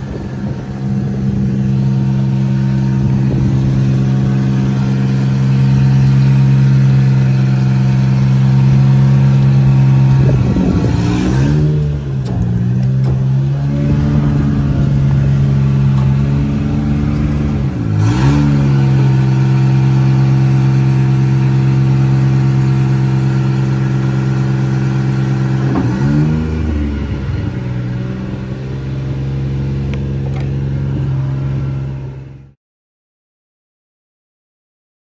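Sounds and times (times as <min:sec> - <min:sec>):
truck engine running: 0:00.0 - 0:32.5.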